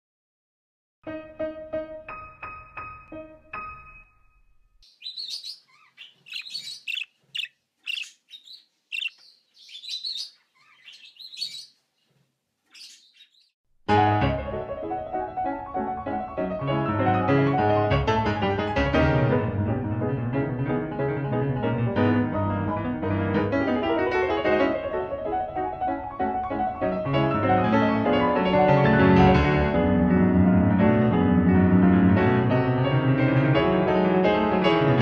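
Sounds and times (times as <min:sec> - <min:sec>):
piano music: 0:01.0 - 0:04.8, 0:13.9 - 0:35.0
birds chirping: 0:04.8 - 0:13.6.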